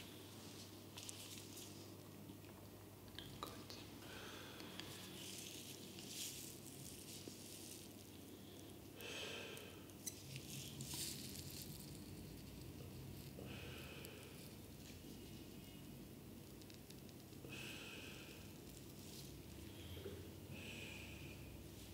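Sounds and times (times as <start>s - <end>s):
soft rustling from hand handling: 0.0s - 4.0s, 4.7s - 8.8s, 9.9s - 13.4s, 14.2s - 17.4s, 18.5s - 20.4s
low steady hum: 0.0s - 21.9s.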